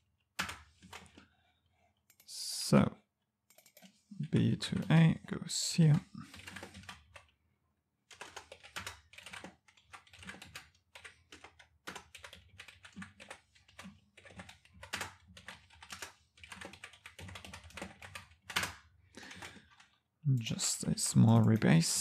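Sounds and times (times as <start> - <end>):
computer keyboard typing: 0.4 - 1.3, 3.5 - 5.0, 5.9 - 7.4, 8.1 - 20.5.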